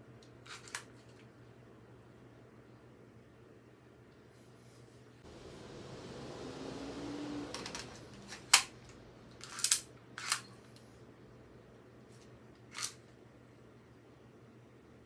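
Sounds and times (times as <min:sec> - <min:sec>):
soft rushing noise: 0:05.2 - 0:11.6
pistol slide clicks: 0:09.4 - 0:10.5.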